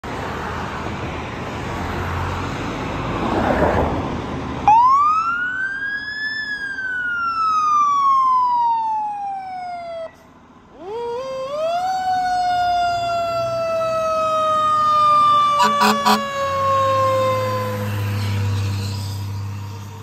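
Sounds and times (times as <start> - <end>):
car passing: 0.1 - 4.9
fire engine siren wailing: 4.6 - 20.0.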